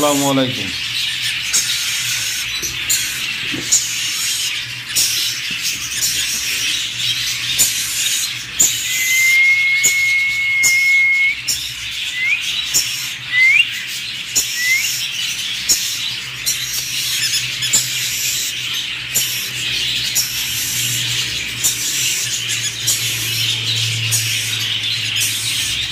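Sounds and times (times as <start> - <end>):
parrots chattering and chirping: 0.0 - 25.9
rising whistled calls: 8.2 - 15.2.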